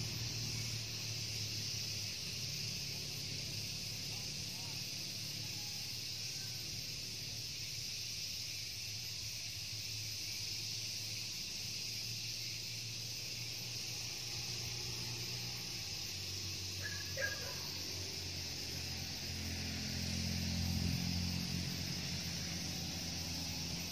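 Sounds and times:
insect chorus: 0.0 - 23.9.

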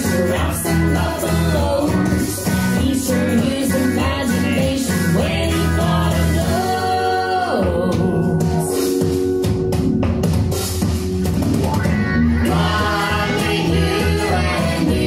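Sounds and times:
person singing: 0.0 - 9.0
drums: 0.0 - 15.0
guitar: 0.0 - 15.0.

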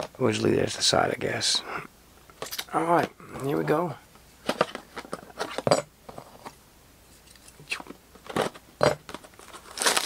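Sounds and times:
plastic shrink-wrap tearing: 9.4 - 10.0.

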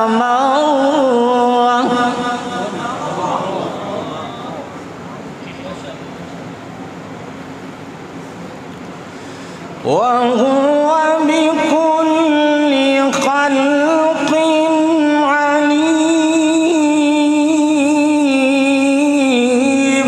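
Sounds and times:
man reciting melodically: 0.0 - 4.7, 9.8 - 20.0.

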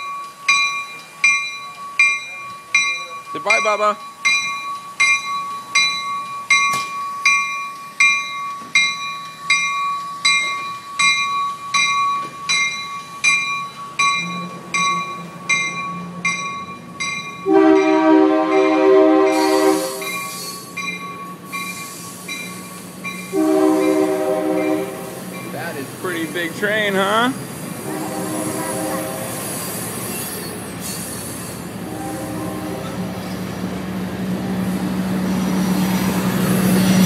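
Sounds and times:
train bell ringing: 0.0 - 37.0
train horn blasts: 17.4 - 20.2, 23.3 - 25.2, 27.8 - 29.5, 31.8 - 33.0.

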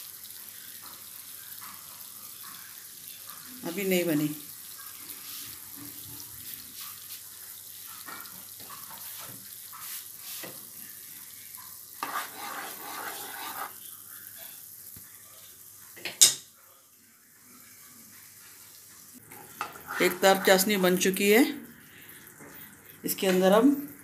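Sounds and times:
sugar syrup boiling: 0.0 - 15.9, 16.8 - 24.0
wooden spatula stirring: 12.0 - 13.8, 19.2 - 21.0.

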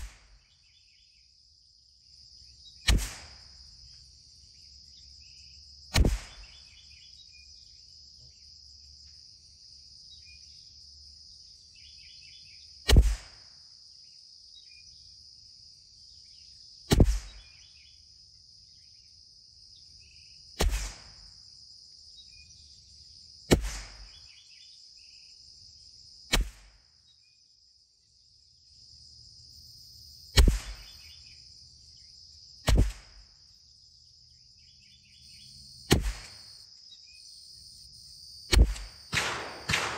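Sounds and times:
rifle shots: 30.4 - 31.0, 35.8 - 36.6, 38.5 - 39.9.

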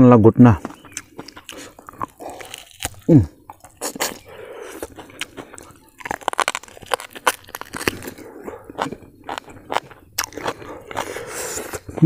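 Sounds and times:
person chewing food: 0.6 - 12.0
wet mouth clicks and lip smacks: 0.7 - 5.8.

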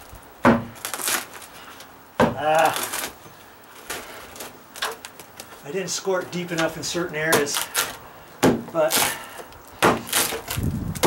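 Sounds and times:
rotten wood cracking and splintering: 0.0 - 11.0.

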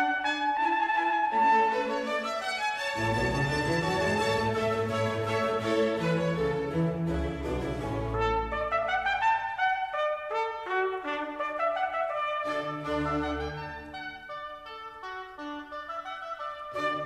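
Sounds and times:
instrumental melody of held notes: 12.0 - 17.0.

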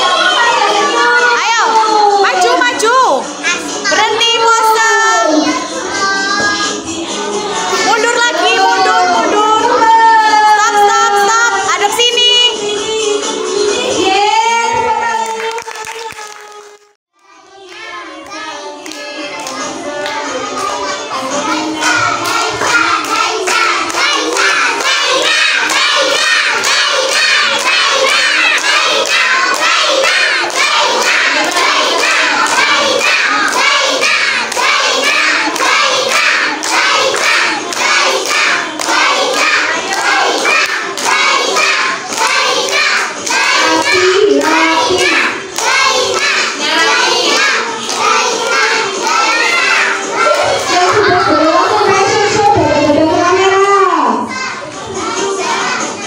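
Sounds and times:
children singing and shouting: 0.0 - 56.0
hand clapping: 15.2 - 16.9, 22.2 - 49.6.

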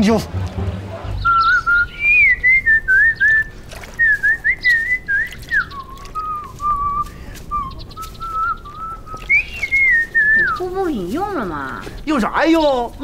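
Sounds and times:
person whistling a tune: 1.2 - 10.6.

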